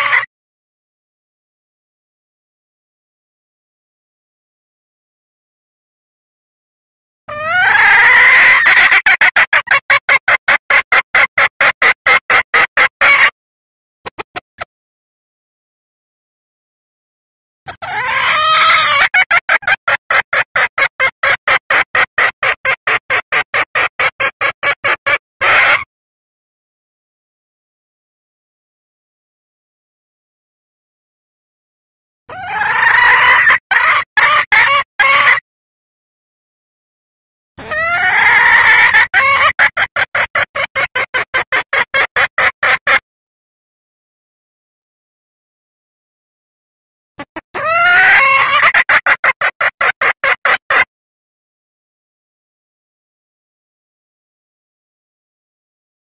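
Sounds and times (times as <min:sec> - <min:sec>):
junglefowl hen calling: 0:00.0 - 0:00.3, 0:07.3 - 0:13.4, 0:14.0 - 0:14.7, 0:17.6 - 0:25.9, 0:32.3 - 0:35.4, 0:37.6 - 0:43.0, 0:47.2 - 0:50.9.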